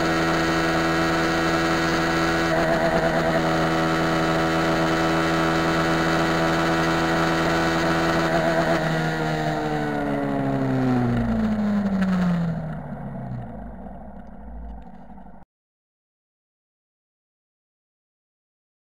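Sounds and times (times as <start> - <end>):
motorcycle engine at high revs: 0.0 - 13.9.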